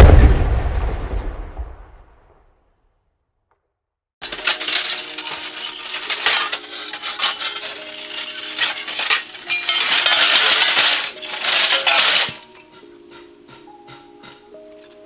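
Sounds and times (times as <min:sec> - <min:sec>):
broken glass shards clinking: 0:04.2 - 0:12.9.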